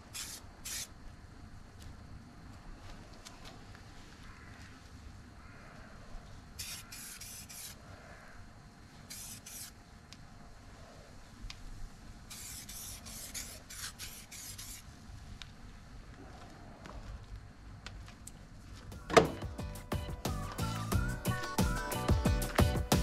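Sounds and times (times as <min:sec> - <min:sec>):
spray paint hissing bursts: 0:00.0 - 0:01.0, 0:06.6 - 0:07.8, 0:09.0 - 0:09.8, 0:12.3 - 0:14.8.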